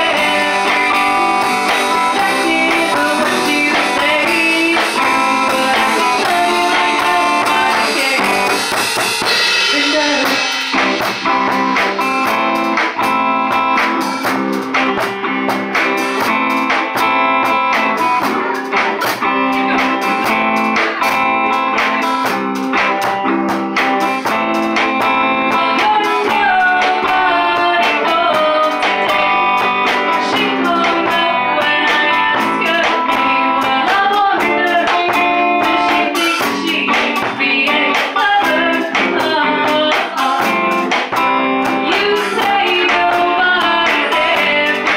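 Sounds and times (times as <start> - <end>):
woman singing: 0.0 - 8.9, 9.6 - 10.6, 25.0 - 44.9
bass guitar: 0.0 - 44.9
drums: 0.0 - 44.9
electric guitar: 0.0 - 44.9.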